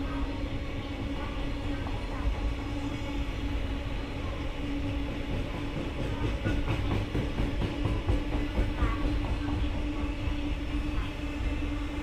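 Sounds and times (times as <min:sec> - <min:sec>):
train wheels rumbling on track: 0:00.0 - 0:12.0
constant hum: 0:08.6 - 0:12.0.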